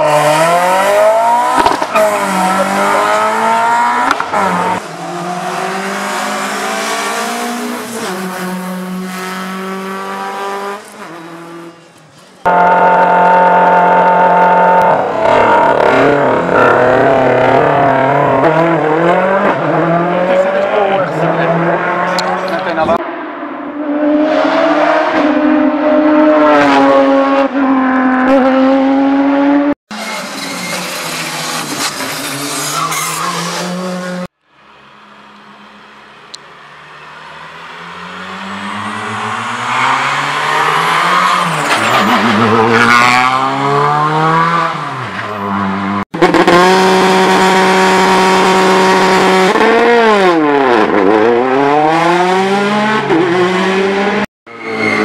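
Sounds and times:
rally car engines revving: 0:00.0 - 0:55.0.

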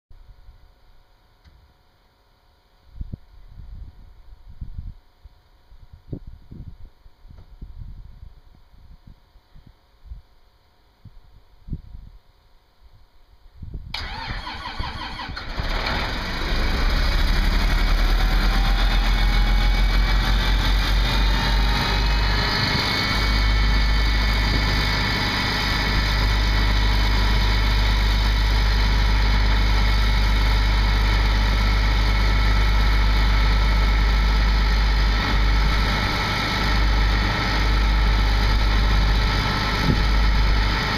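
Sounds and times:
diesel engine running loud: 0:14.0 - 0:40.9
engine whine: 0:14.0 - 0:40.9
starter cranking diesel engine: 0:14.0 - 0:40.9.

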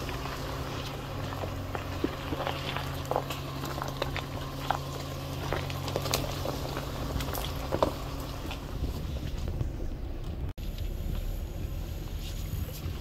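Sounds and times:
engine humming: 0:00.0 - 0:13.0
stones popping under tyres: 0:00.0 - 0:13.0
tyres crunching over gravel: 0:00.0 - 0:13.0.

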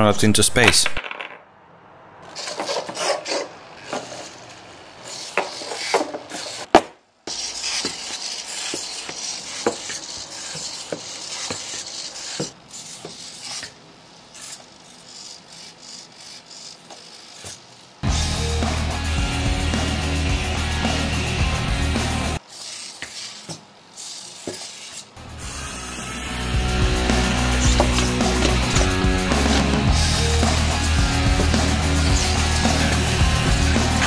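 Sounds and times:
servos whirring: 0:02.2 - 0:06.7, 0:07.3 - 0:34.0
music: 0:18.0 - 0:22.4, 0:25.2 - 0:34.0.

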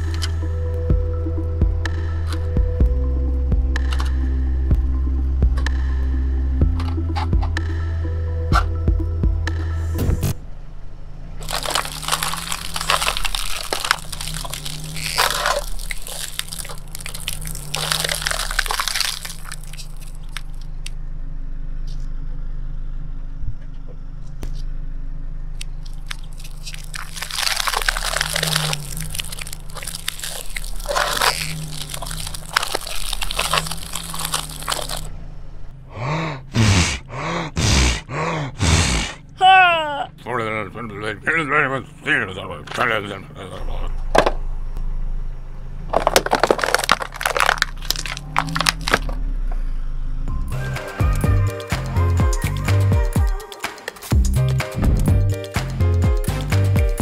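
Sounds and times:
car engine running low: 0:00.0 - 0:53.4, 0:54.1 - 0:57.0
tyre crunching bowls: 0:11.4 - 0:20.9, 0:25.7 - 0:35.3, 0:45.9 - 0:49.2.

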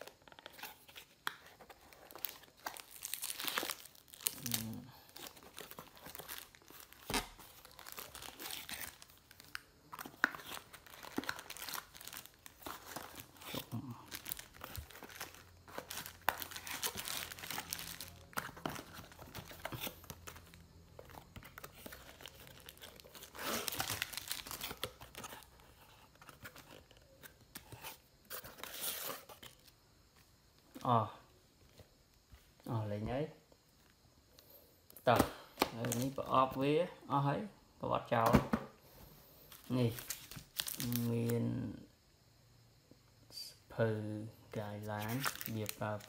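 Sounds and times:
plastic bag crinkling: 0:01.9 - 0:20.6, 0:21.5 - 0:25.4, 0:44.9 - 0:46.0.

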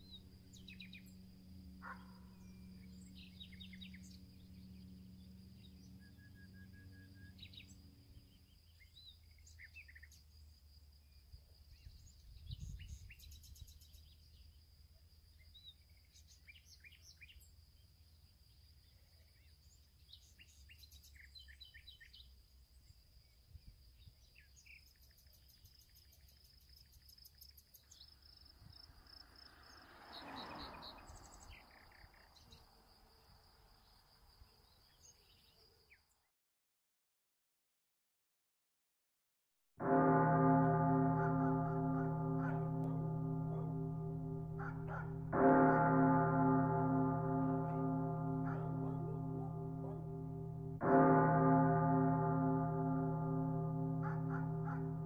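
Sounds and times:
low hum: 0:00.0 - 0:08.3, 0:40.1 - 0:55.0
steady high tone: 0:40.3 - 0:55.0.

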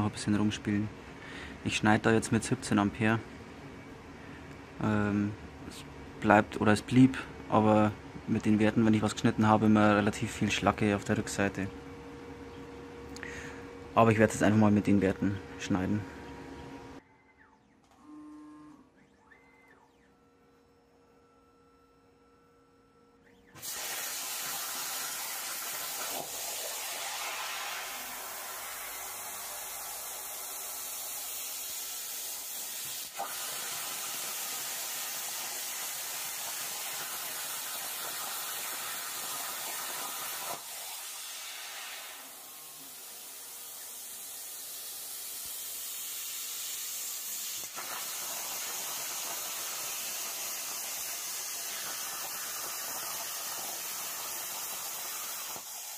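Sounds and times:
plasma torch hissing: 0:23.6 - 0:55.9.

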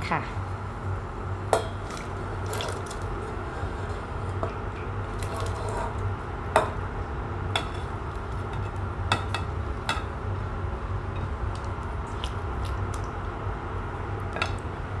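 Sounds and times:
low steady hum: 0:00.0 - 0:15.0
spatula scraping a plate: 0:01.8 - 0:04.5, 0:05.1 - 0:06.0.

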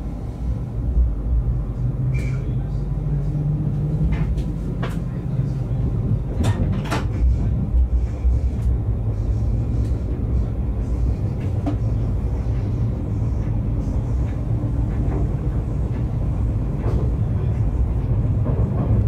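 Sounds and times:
electric train rumbling: 0:00.0 - 0:19.0.

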